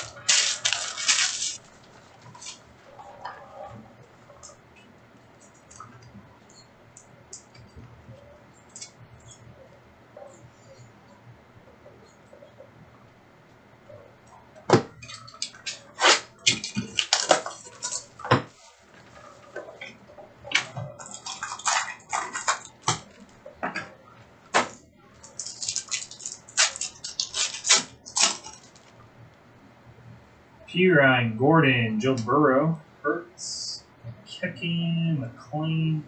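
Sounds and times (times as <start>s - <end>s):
card packs crinkling and rustling: 0.0s - 2.6s, 15.4s - 18.1s, 21.0s - 23.3s, 24.6s - 29.0s.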